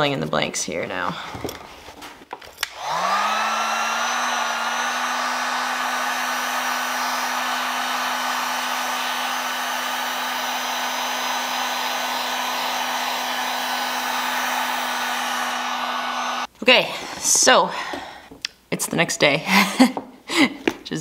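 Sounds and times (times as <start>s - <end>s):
heat gun fan whining: 2.6s - 16.5s.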